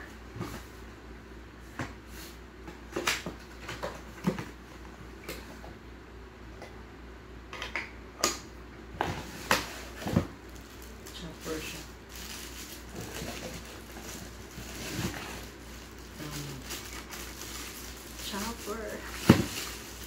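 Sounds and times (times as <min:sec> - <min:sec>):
parts knocking in box: 0:19.2 - 0:19.8.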